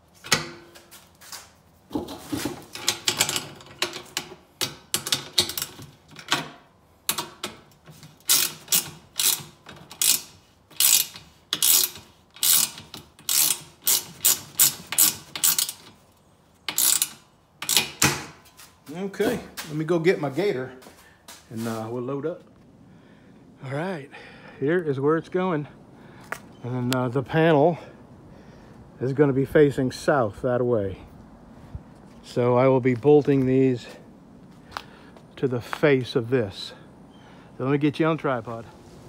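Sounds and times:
ratcheting wrench clicking: 7.1s - 16.0s, 16.6s - 18.1s.

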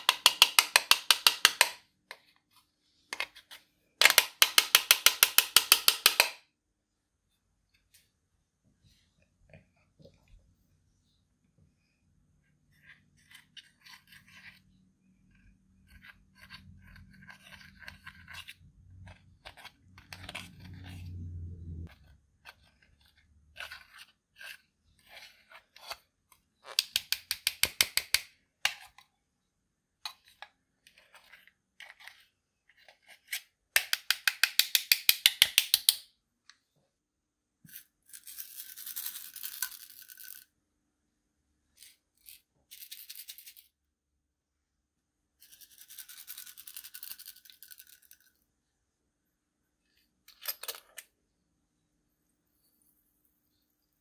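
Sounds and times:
metal tool scraping powder: 12.7s - 21.1s, 21.8s - 26.0s.

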